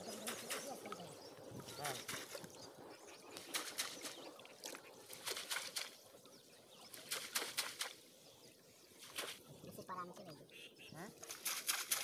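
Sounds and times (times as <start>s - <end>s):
water splashing: 0.0s - 6.2s, 6.8s - 8.0s, 11.0s - 12.0s
fish flapping in net: 3.4s - 4.2s, 5.1s - 6.0s, 7.0s - 8.0s, 11.2s - 12.0s.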